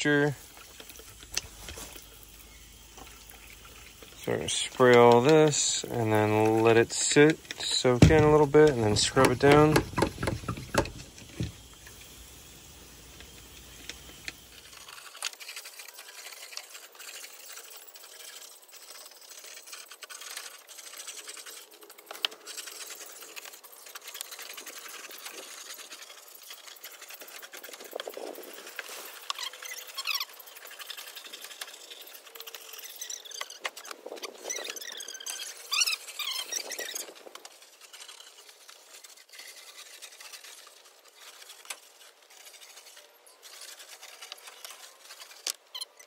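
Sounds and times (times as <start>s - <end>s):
brush scrubbing wooden deck: 3.0s - 12.2s, 13.2s - 45.8s
short high squeaks: 28.5s - 46.0s.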